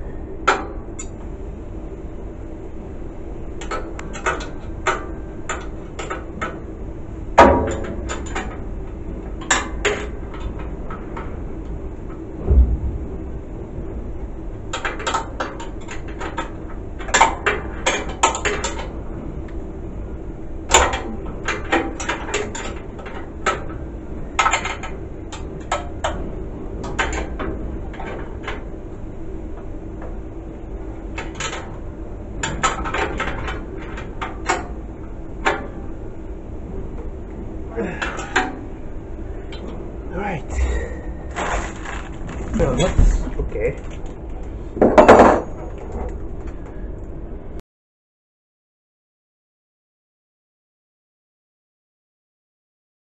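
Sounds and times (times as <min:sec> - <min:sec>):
steady hum: 0:00.0 - 0:47.6.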